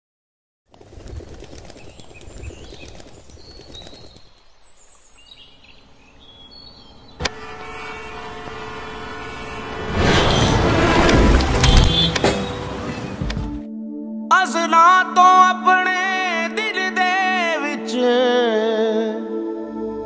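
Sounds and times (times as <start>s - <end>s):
birds chirping: 1.7s - 7.3s.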